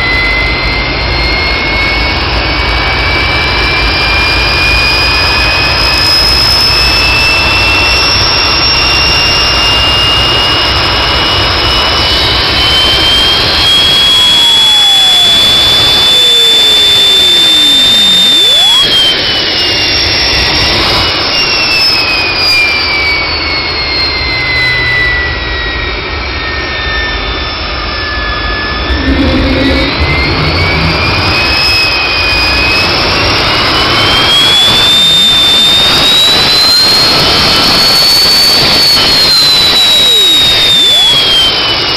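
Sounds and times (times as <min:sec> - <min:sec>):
turbine whine: 0:00.0 - 0:41.9
exhaust rushing: 0:27.8 - 0:36.4.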